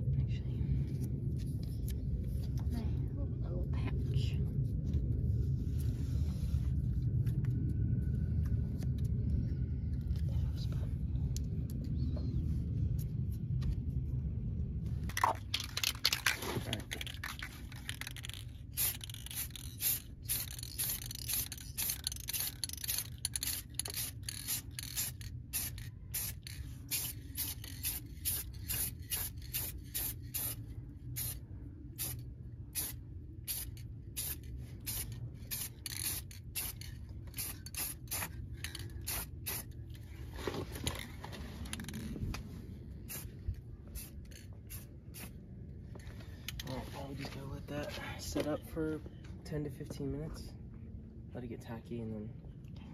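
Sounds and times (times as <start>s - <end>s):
spray-paint can hissing: 17.9s - 30.6s, 31.2s - 31.4s, 32.0s - 38.3s, 39.0s - 39.7s, 43.1s - 43.3s, 44.0s - 45.3s.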